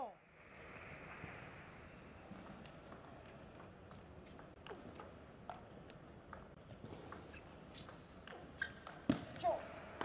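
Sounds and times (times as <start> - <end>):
short high squeaks: 3.2 - 3.6.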